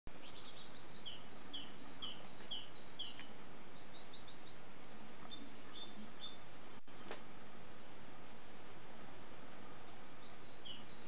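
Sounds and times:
background hiss: 0:00.1 - 0:11.0
bird singing whistled notes: 0:00.2 - 0:04.6, 0:05.3 - 0:06.6, 0:10.0 - 0:11.0.

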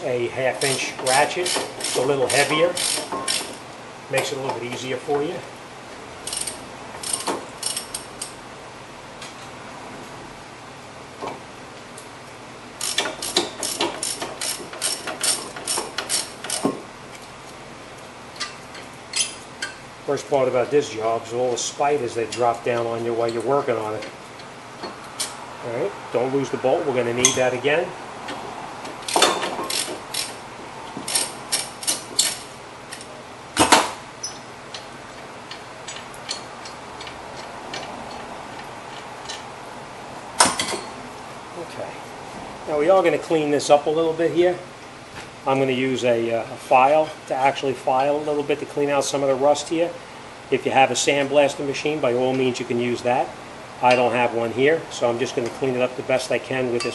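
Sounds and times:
ratchet clicking: 0:00.6 - 0:03.6, 0:06.2 - 0:08.4, 0:12.8 - 0:16.7, 0:29.0 - 0:30.4, 0:31.0 - 0:33.0.

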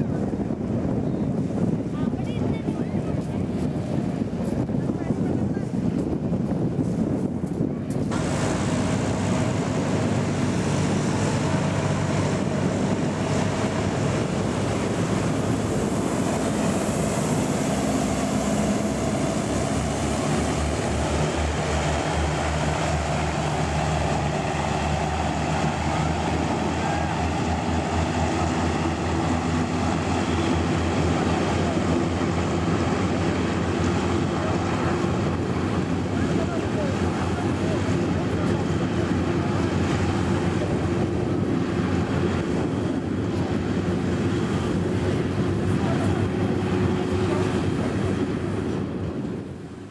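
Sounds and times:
hovercraft propeller drone: 0:00.0 - 0:49.9
wind on microphone: 0:00.0 - 0:49.9
hiss of blown spray: 0:08.1 - 0:27.5.

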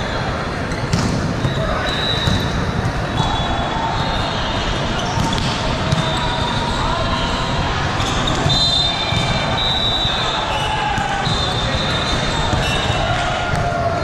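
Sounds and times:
players' voices: 0:00.0 - 0:14.0
balls struck and bouncing: 0:00.7 - 0:03.4, 0:05.0 - 0:06.3, 0:08.0 - 0:09.6, 0:10.9 - 0:14.0.

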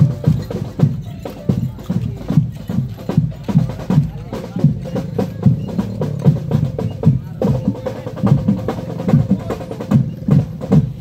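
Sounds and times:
bass drum beats: 0:00.0 - 0:11.0
marching drum band: 0:00.0 - 0:11.0.

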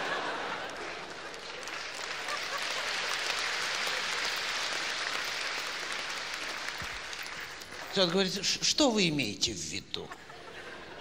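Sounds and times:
audience laughing: 0:00.0 - 0:04.2, 0:10.0 - 0:11.0
audience clapping: 0:00.0 - 0:08.7.

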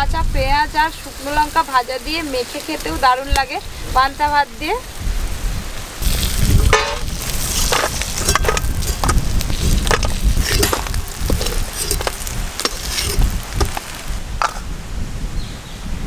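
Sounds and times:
crabs sizzling in oil: 0:00.6 - 0:14.4
metal spatula scraping a wok: 0:06.0 - 0:14.6.

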